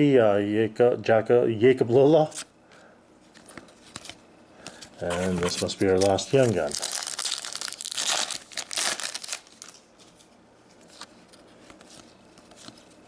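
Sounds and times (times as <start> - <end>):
foil wrapper tearing and crinkling: 5.1 - 9.8.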